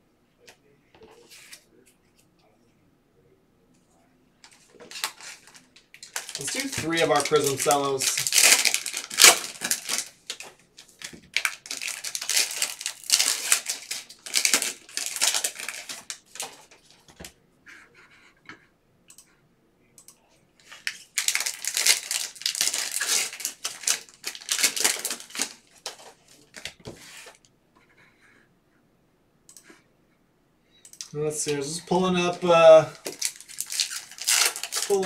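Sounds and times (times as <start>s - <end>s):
plastic wrappers crinkling and tearing: 4.4s - 17.0s, 20.6s - 26.8s, 31.4s - 35.0s.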